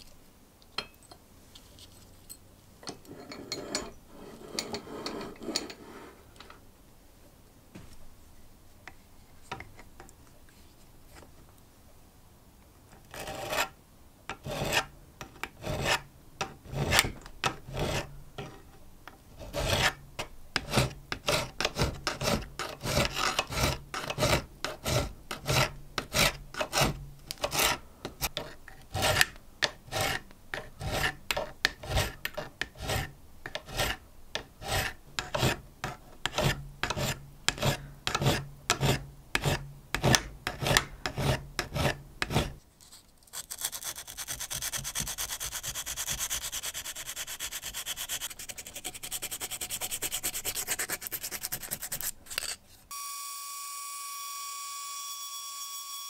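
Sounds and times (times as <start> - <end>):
hand file rasping on metal: 13.1 - 13.7, 14.4 - 14.9, 15.5 - 16.1, 17.7 - 18.1, 19.4 - 20.0, 20.6 - 27.8, 28.4 - 42.6, 43.4 - 52.6.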